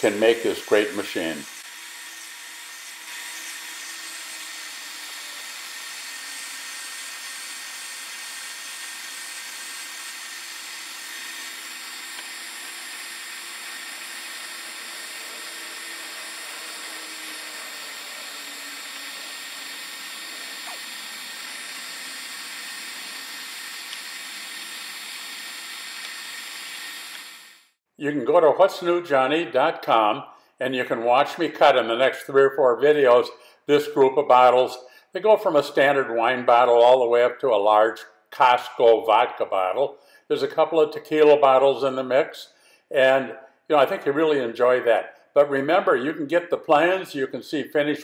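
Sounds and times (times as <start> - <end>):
shop vacuum running: 0.0 - 3.8
angle grinder sanding glass: 0.0 - 27.8.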